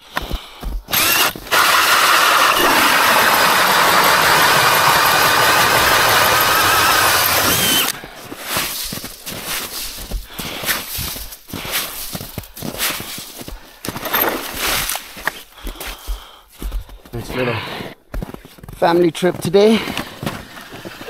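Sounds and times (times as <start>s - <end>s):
cordless drill boring through ice: 0.9s - 8.0s.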